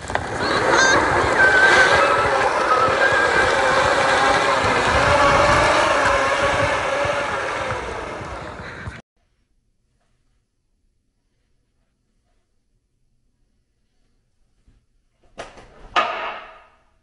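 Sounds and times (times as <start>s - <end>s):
scraping rumble on plastic floor: 0.0s - 9.0s
wavering squeal: 0.4s - 8.6s.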